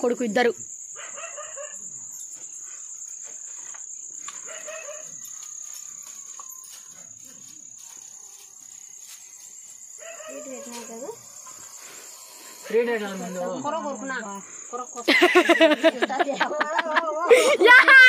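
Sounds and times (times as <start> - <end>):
crickets trilling: 0.0 - 18.0.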